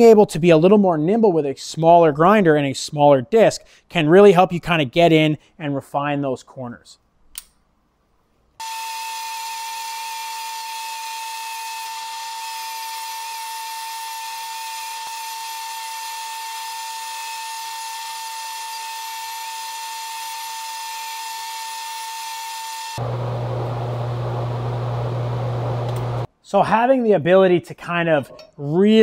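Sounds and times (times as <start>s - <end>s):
die grinder grinding metal: 8.6s - 26.3s.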